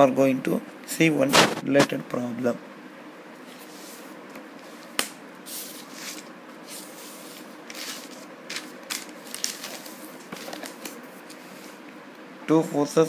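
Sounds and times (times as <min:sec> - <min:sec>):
notebook pages rustling: 0:05.5 - 0:11.8.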